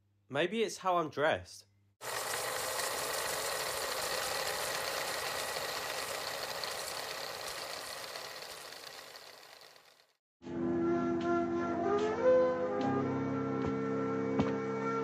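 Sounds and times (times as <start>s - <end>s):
film projector whirring hiss: 2.0s - 10.2s
projector mechanical rattle: 2.0s - 10.2s.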